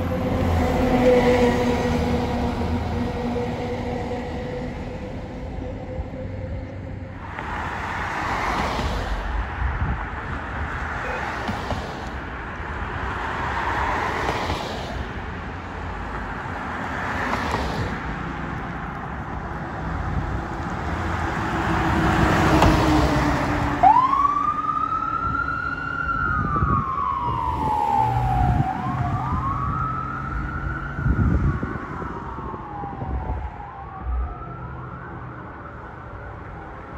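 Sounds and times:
siren wailing: 0:00.0 - 0:07.2, 0:21.6 - 0:36.9
ambulance passing: 0:00.0 - 0:36.9
cars swishing past: 0:07.2 - 0:25.8.

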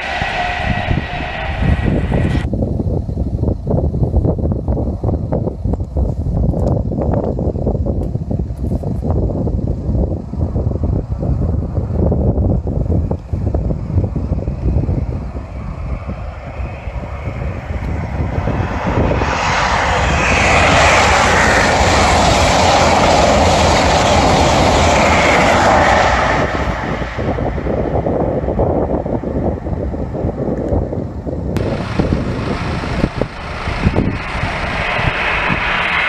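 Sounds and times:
train passing at high speed: 0:00.0 - 0:02.5, 0:13.4 - 0:30.2, 0:31.6 - 0:36.0
wind rumbling on microphone: 0:00.0 - 0:36.0.

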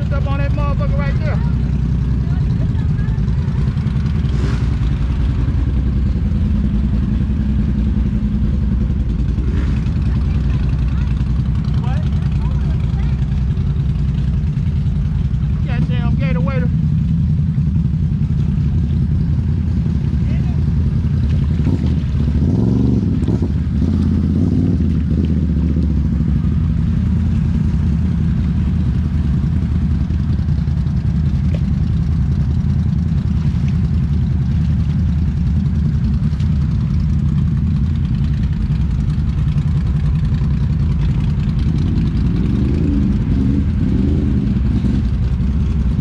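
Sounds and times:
atv engine running: 0:00.0 - 0:46.0.

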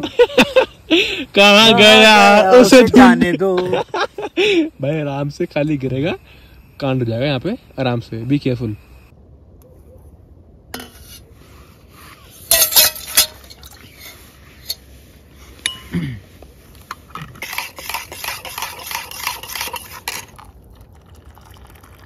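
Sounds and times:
spoon clinking metal cookware: 0:12.5 - 0:14.8.

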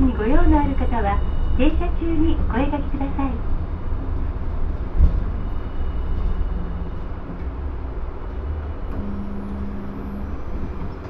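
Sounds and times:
steady low hum: 0:00.0 - 0:11.0
streetcar rumbling: 0:00.0 - 0:11.0.

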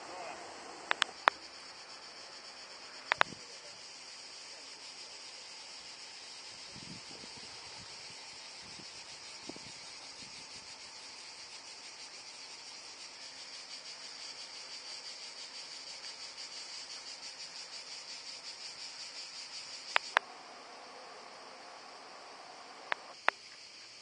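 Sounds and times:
cicadas chorus: 0:00.0 - 0:24.0
sharp clicks: 0:00.9 - 0:01.4, 0:03.0 - 0:03.4, 0:19.9 - 0:20.3, 0:22.9 - 0:23.4.

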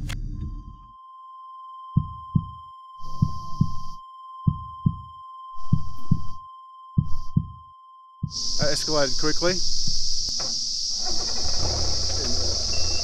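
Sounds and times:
heartbeat thumps: 0:02.0 - 0:06.4, 0:07.0 - 0:07.6, 0:08.2 - 0:08.6.

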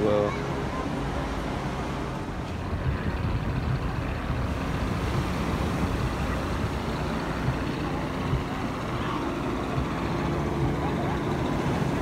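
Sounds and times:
wind buffeting microphone: 0:02.5 - 0:12.0
ocean surf: 0:04.2 - 0:12.0.

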